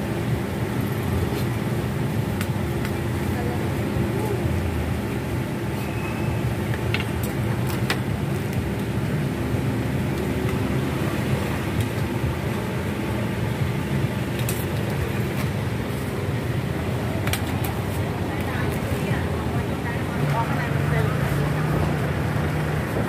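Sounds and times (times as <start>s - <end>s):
street traffic rumble: 0.0s - 23.0s.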